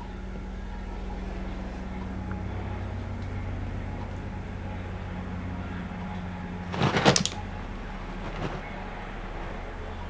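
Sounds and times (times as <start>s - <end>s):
steady low hum: 0.0s - 10.0s
kitten scratching in cat litter: 6.7s - 7.4s.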